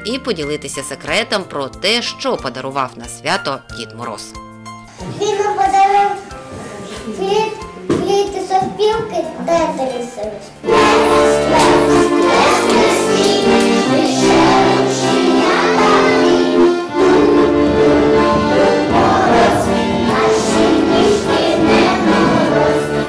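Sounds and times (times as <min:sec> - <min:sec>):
musical backing: 0:00.0 - 0:23.0
children singing: 0:10.6 - 0:23.0.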